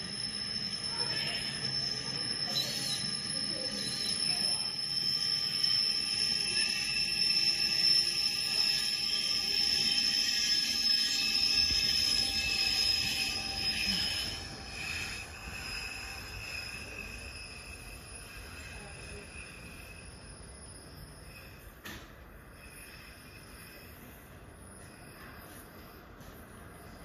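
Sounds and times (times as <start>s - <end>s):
toy train motor whine: 0.0s - 20.2s.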